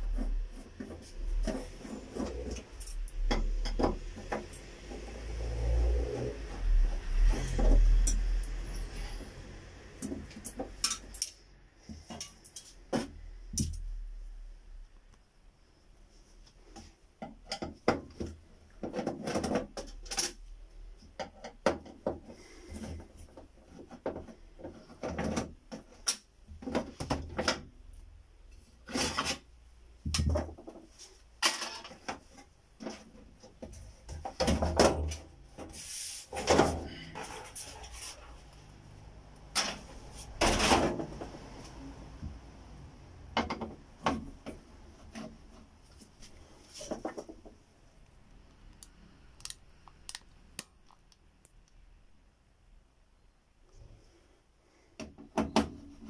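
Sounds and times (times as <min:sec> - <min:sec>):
plastic rubbing and scraping: 0:00.0 - 0:10.8, 0:17.6 - 0:20.6, 0:21.3 - 0:27.8, 0:28.5 - 0:38.8, 0:43.5 - 0:47.7.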